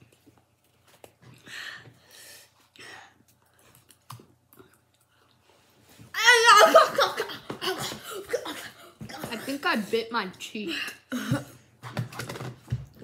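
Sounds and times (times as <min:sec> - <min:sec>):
boy crying out: 0:06.1 - 0:08.5.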